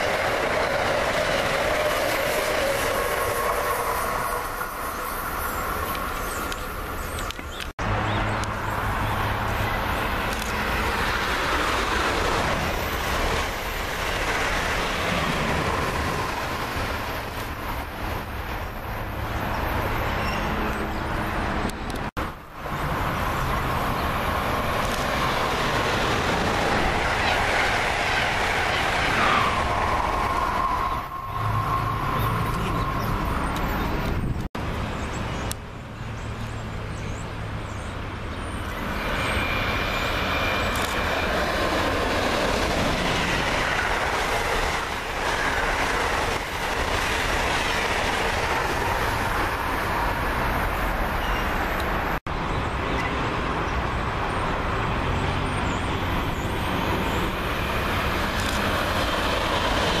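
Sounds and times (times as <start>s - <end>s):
passenger train passing at speed: 0.0s - 60.0s.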